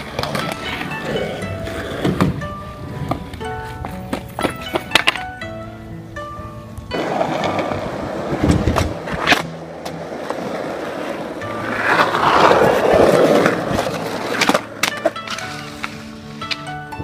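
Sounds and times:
skateboard clacks: 0:00.0 - 0:05.6, 0:06.9 - 0:17.0
background music: 0:00.0 - 0:17.0
skateboard wheels rolling on asphalt: 0:00.0 - 0:17.0.

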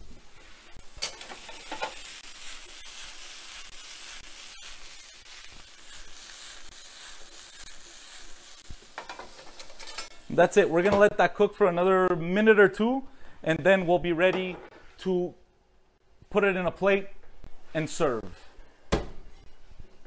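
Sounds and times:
vegetables sizzling in skillet: 0:00.0 - 0:10.9.

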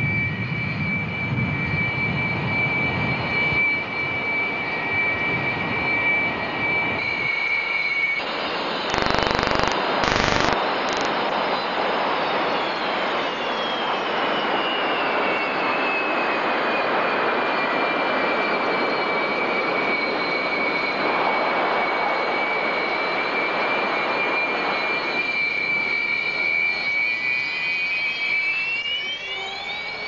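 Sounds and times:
jet engine whine: 0:00.0 - 0:30.0
jet noise rushing: 0:08.9 - 0:11.4.

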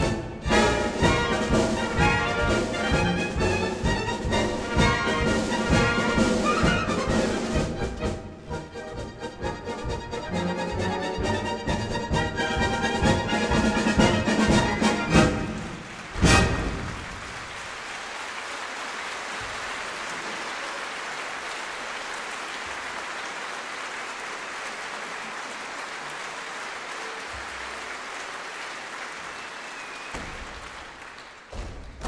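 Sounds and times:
audience applauding: 0:12.6 - 0:32.0.

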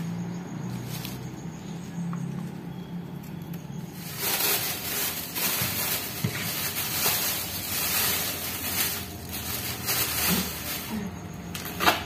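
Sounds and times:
plastic bag crinkling: 0:03.7 - 0:12.0.

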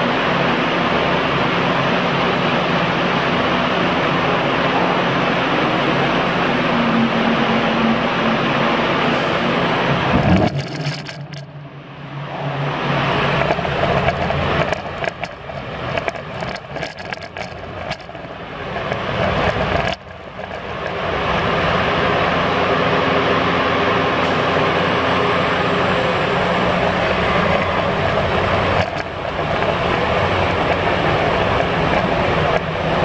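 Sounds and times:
low hum: 0:05.6 - 0:33.0
scattered clicks: 0:10.1 - 0:11.5, 0:13.4 - 0:21.0, 0:28.7 - 0:30.8.

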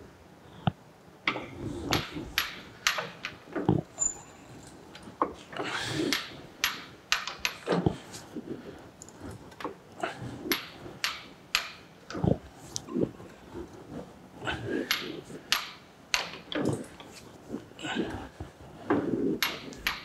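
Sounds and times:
arbor press clicks and knocks: 0:14.8 - 0:17.1.

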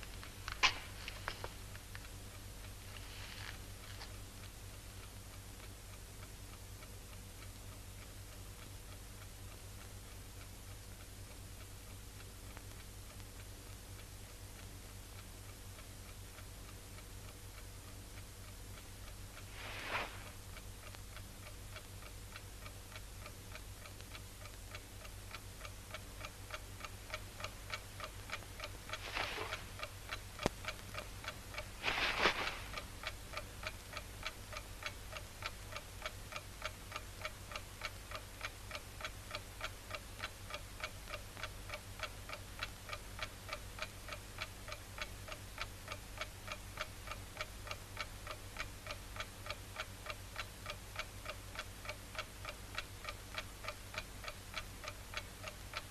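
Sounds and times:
clock ticking: 0:00.0 - 0:55.9
short rustling bursts: 0:28.9 - 0:29.9, 0:31.6 - 0:33.0.

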